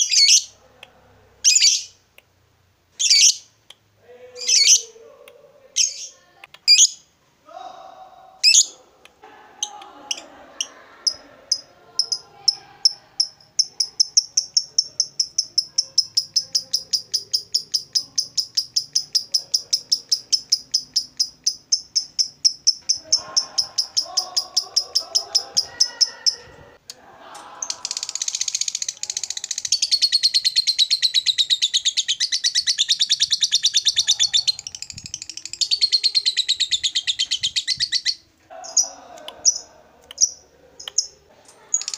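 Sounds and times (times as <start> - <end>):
lovebird rapid chattering: 10.1 - 26.4, 27.6 - 41.1.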